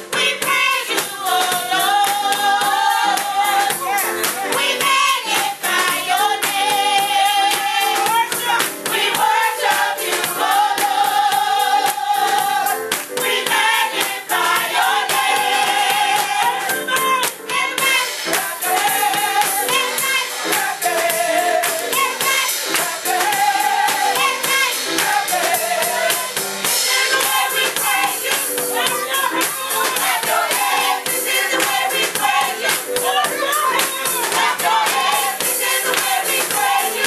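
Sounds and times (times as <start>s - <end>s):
women's choir singing: 0.0s - 37.0s
hands clapping: 3.2s - 6.7s, 7.5s - 8.9s, 11.9s - 15.4s, 16.2s - 25.2s, 31.5s - 37.0s.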